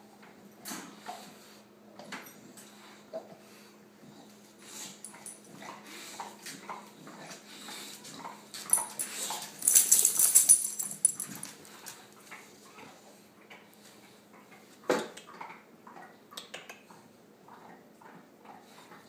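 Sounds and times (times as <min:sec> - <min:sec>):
jingling and rattling: 0:05.0 - 0:05.5, 0:08.6 - 0:12.0.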